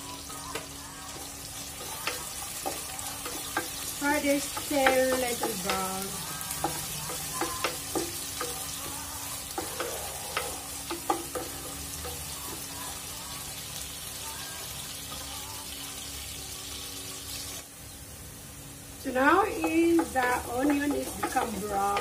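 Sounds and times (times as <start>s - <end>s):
onions sizzling in hot oil: 0.0s - 22.0s
wooden spoon knocking against pot: 4.4s - 9.0s, 19.6s - 22.0s.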